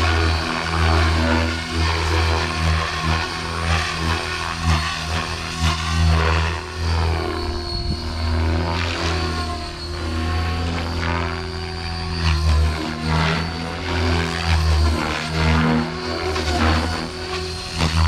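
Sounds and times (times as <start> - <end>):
helicopter rotor blades churning: 0.0 - 18.0
high motor whine: 0.0 - 18.0.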